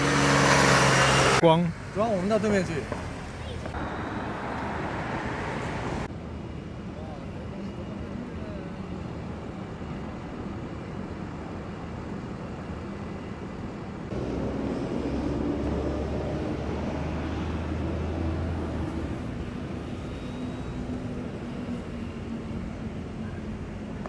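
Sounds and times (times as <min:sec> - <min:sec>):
vehicle engine hum close by: 0:00.0 - 0:02.0, 0:14.1 - 0:24.0
street traffic hum: 0:00.0 - 0:24.0.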